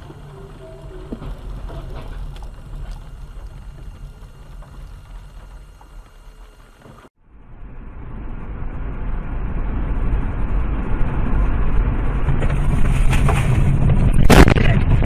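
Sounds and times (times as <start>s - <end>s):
car engine: 0.0s - 15.0s
road rumble: 0.0s - 15.0s
loud car crash: 12.3s - 15.0s.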